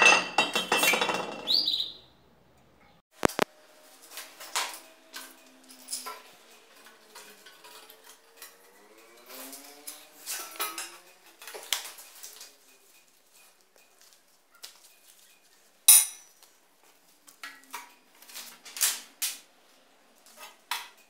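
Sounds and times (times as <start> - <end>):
metal tools clinking on steel plate: 0.0 - 1.5, 4.2 - 14.2, 14.8 - 16.5.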